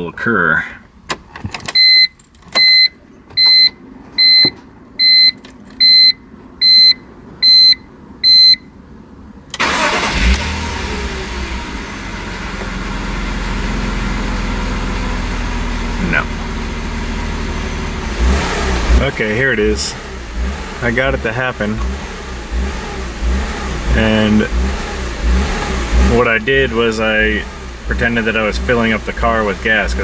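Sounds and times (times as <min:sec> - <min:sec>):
car warning chime beeping: 0:01.7 - 0:08.8
car engine idling: 0:09.5 - 0:30.0.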